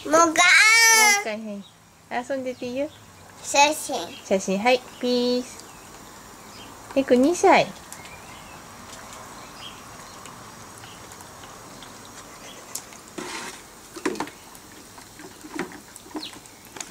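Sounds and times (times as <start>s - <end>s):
faint steady hiss: 0.0s - 16.9s.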